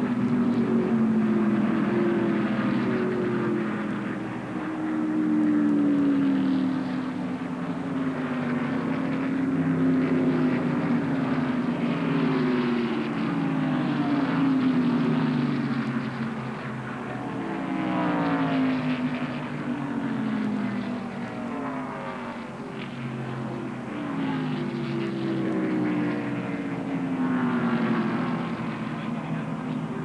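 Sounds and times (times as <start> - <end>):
race car engines passing: 0.0 - 30.0.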